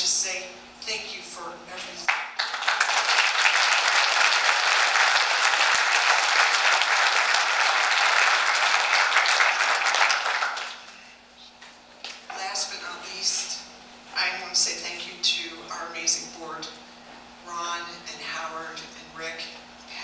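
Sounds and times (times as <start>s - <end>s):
audience applauding: 2.1s - 11.0s.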